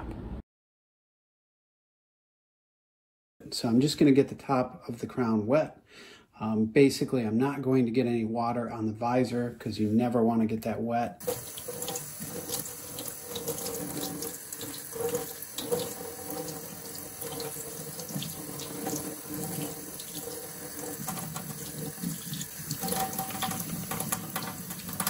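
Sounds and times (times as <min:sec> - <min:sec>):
faucet water splashing into sink: 0:11.2 - 0:25.0.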